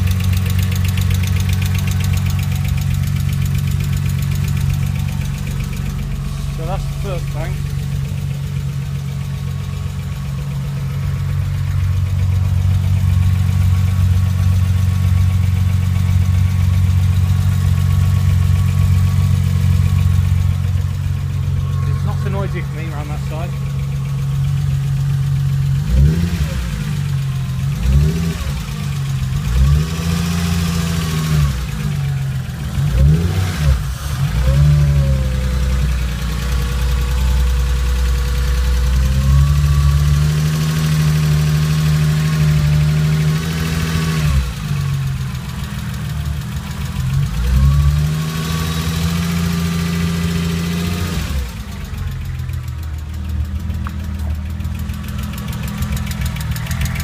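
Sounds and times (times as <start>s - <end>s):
car engine running: 0.0s - 57.0s
engine tappet noise: 51.0s - 57.0s.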